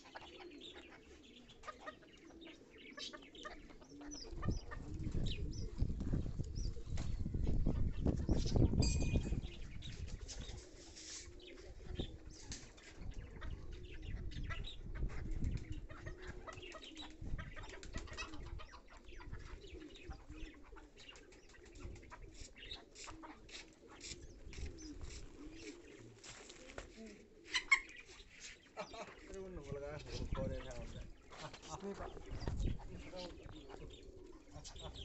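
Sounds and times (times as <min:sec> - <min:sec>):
soft low bird calls: 0:00.0 - 0:35.0
chickens pecking on concrete: 0:15.0 - 0:35.0.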